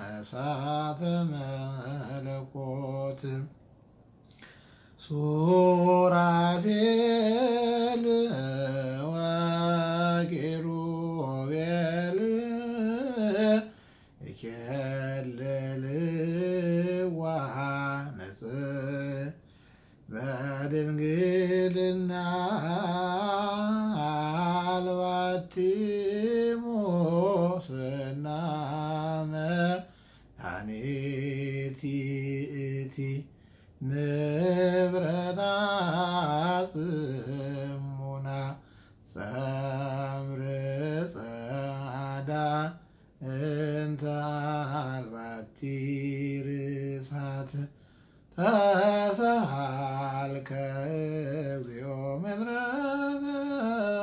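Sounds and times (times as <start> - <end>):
man chanting a hymn: 0.0 - 3.5, 5.0 - 19.4, 20.0 - 54.0
short breaths: 4.2 - 5.0, 13.7 - 14.2, 19.4 - 20.1, 29.9 - 30.4, 33.3 - 33.8, 38.6 - 39.1, 47.7 - 48.3.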